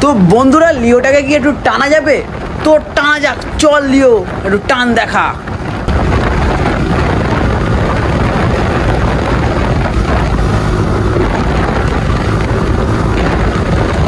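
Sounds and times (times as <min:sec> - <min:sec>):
wind on microphone: 0:00.0 - 0:14.0
motorcycle engine: 0:05.5 - 0:14.0.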